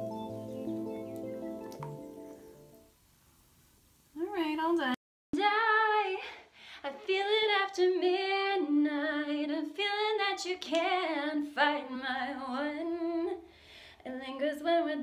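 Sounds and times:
woman singing a cappella: 4.2s - 15.0s.

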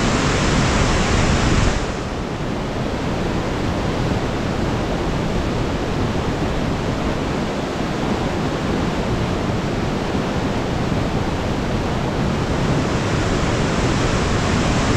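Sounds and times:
creek rushing through rapids: 6.9s - 14.9s.

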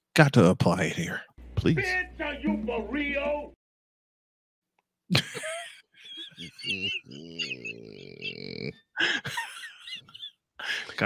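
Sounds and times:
men laughing: 5.1s - 11.0s.

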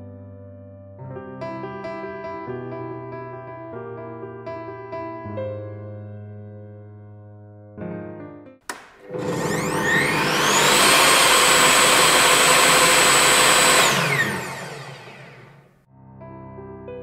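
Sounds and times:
table saw motor whine: 9.0s - 15.7s.

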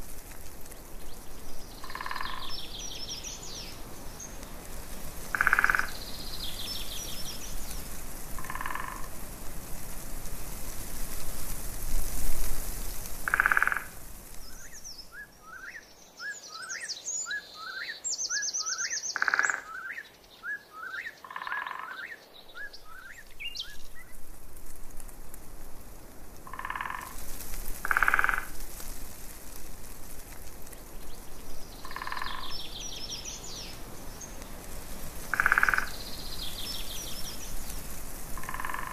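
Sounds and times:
steady hiss: 0.0s - 21.4s, 22.1s - 38.9s
birds chirping and trilling: 1.0s - 4.4s, 5.3s - 7.8s, 14.4s - 24.2s, 31.0s - 34.5s, 35.3s - 37.7s
frogs croaking: 1.8s - 3.4s, 5.3s - 9.2s, 13.2s - 14.8s, 18.6s - 20.1s, 20.8s - 22.2s, 26.4s - 27.2s, 27.8s - 28.6s, 31.8s - 33.7s, 35.2s - 37.4s, 38.3s - 38.9s.

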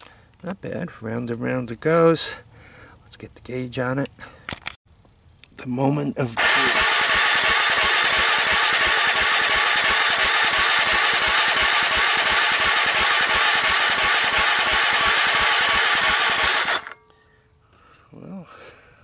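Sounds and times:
electric starter cranking engine: 6.4s - 17.0s.

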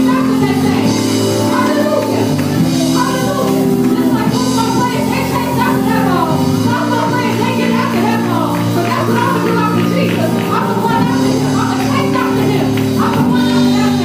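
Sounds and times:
band chords and bass: 0.0s - 14.0s
shaken percussion: 0.0s - 14.0s
worship team singing: 0.0s - 14.0s.

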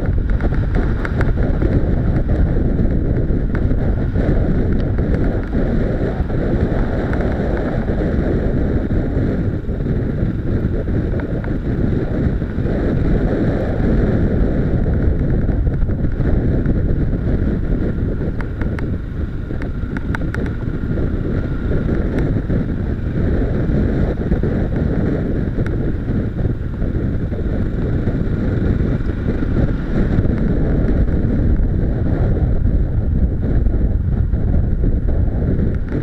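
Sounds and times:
motorcycle ride rumble: 0.0s - 36.0s
wind rushing over microphone: 0.0s - 36.0s.

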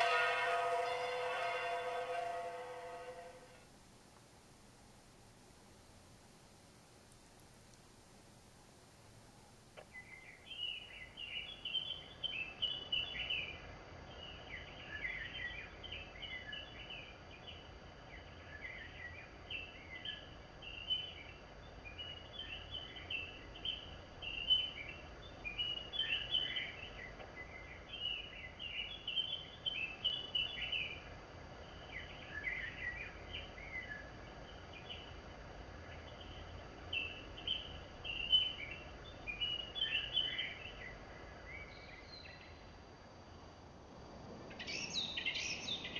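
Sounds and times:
faint high whine: 0.0s - 45.9s
small birds chirping: 9.8s - 42.8s, 44.6s - 45.9s.

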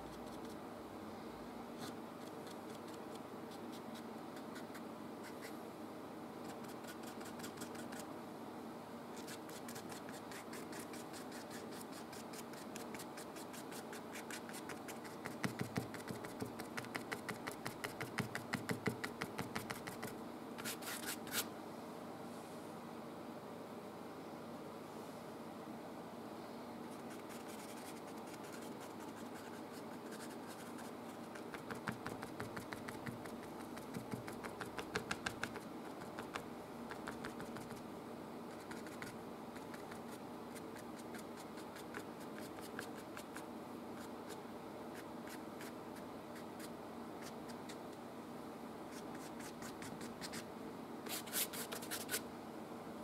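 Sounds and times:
steady low hum: 0.0s - 53.0s
paintbrush dabbing on canvas: 27.0s - 37.8s.

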